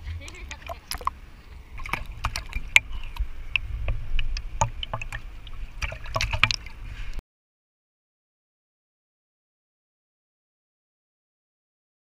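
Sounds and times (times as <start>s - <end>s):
low rumble: 0.0s - 7.2s
pool water splashing: 0.0s - 7.2s
sharp knocks and drips: 0.2s - 7.2s.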